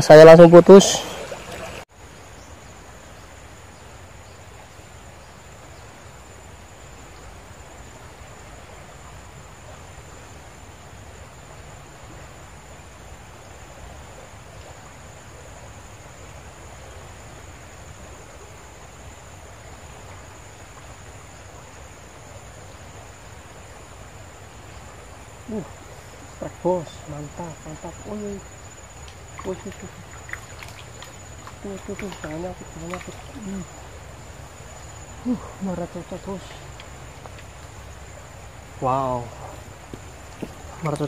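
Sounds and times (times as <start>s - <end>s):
high-pitched insect drone: 14.8s - 41.0s.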